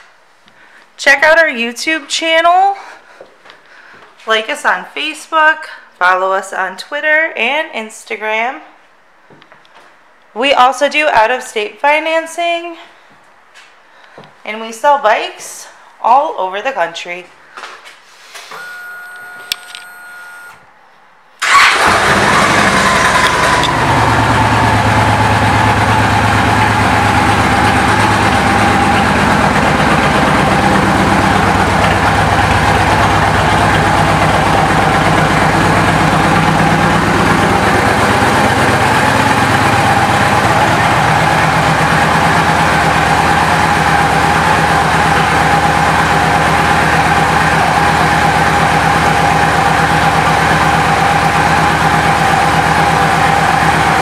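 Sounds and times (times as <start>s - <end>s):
motorcycle engine starting and idling: 21.4s - 54.0s.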